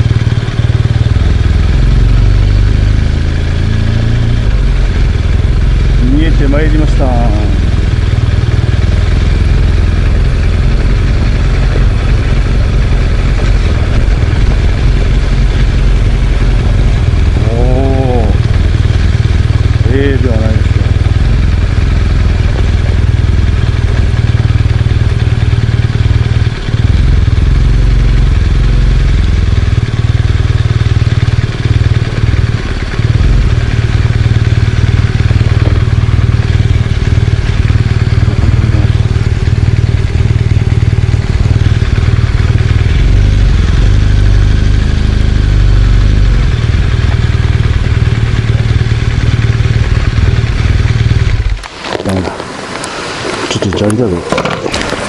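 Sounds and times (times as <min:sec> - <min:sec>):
clatter: 0:00.0 - 0:55.0
motorcycle engine running: 0:00.0 - 0:55.0
wind rumble on microphone: 0:09.5 - 0:19.9, 0:35.5 - 0:46.6.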